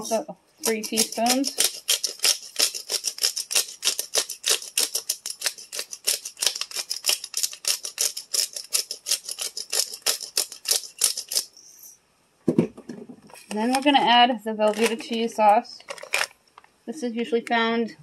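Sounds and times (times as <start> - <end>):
pepper grinder clicking: 0.6 - 11.5.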